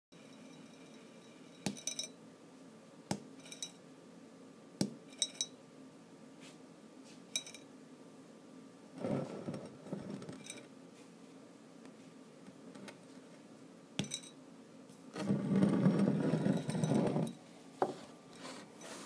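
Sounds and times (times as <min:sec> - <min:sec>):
glassy clinks: 0:00.2 - 0:02.2, 0:03.4 - 0:03.8, 0:05.1 - 0:05.6, 0:14.0 - 0:14.4.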